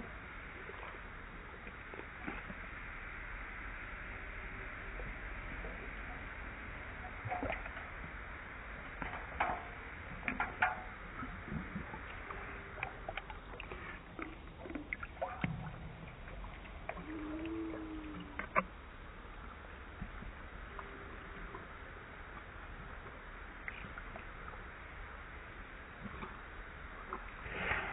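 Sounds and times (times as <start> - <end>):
low background noise: 0.0 - 27.9.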